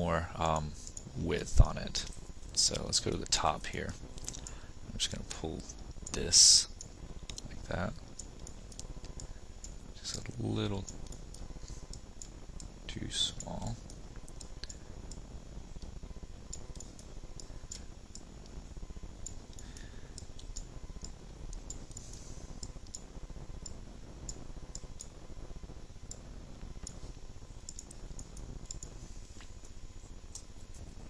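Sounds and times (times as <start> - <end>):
low background noise: 0.0 - 31.0
computer mouse clicking: 8.1 - 12.7, 16.5 - 18.6, 19.2 - 23.0, 27.7 - 29.5.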